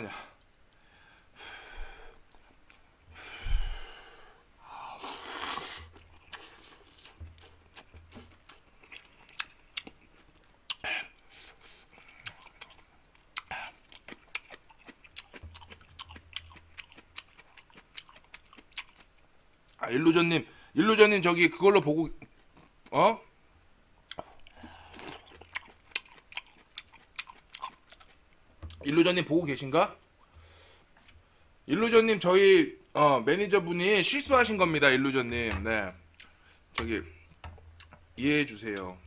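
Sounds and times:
man slurping noodles: 0:05.0 - 0:06.8
chewing mouth clicks and smacks: 0:05.9 - 0:11.2, 0:11.9 - 0:19.8, 0:24.1 - 0:28.8.

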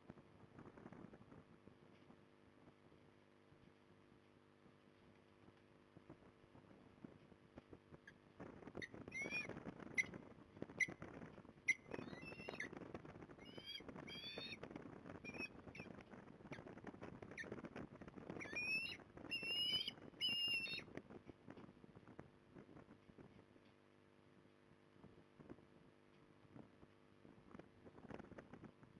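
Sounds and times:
osprey whistled chirps: 0:09.1 - 0:10.1, 0:11.7 - 0:12.7, 0:15.2 - 0:15.9, 0:18.4 - 0:20.9.

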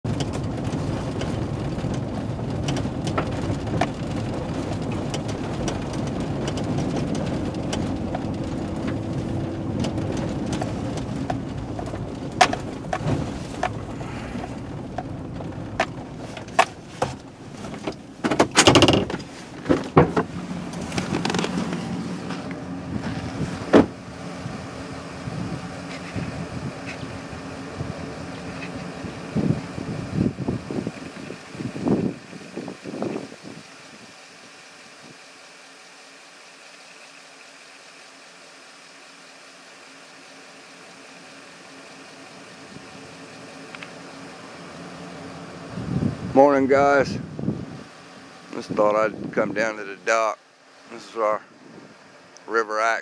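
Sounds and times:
handling noise: 0:00.0 - 0:24.7
car engine and tyre rumble: 0:00.0 - 0:53.0
clicks and knocks: 0:02.6 - 0:22.6.

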